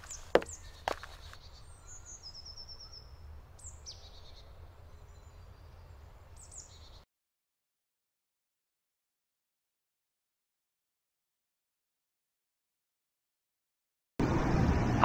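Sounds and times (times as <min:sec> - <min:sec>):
small birds chirping: 0:00.0 - 0:07.0.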